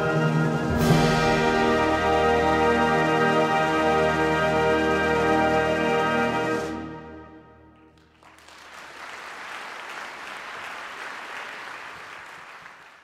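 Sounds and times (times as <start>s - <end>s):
audience applause: 3.4s - 6.6s, 7.8s - 13.0s.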